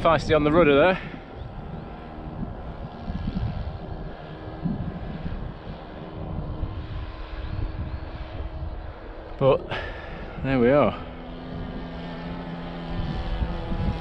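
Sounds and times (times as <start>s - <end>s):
model plane engine droning: 0.0s - 14.0s.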